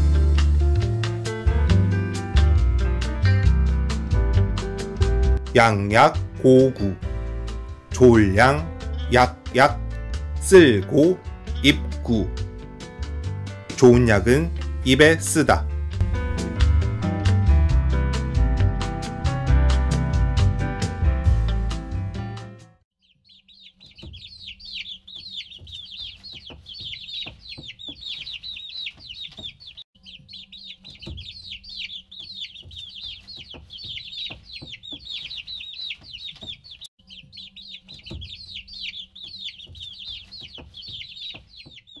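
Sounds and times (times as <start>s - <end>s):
music tune: 7.9s - 12.4s, 13.7s - 22.1s
baby chicks peeping: 7.9s - 15.6s, 23.0s - 42.0s.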